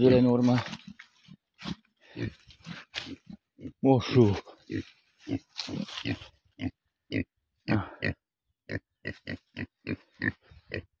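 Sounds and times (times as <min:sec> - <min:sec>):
pigs grunting: 0:02.0 - 0:03.8, 0:04.4 - 0:10.9.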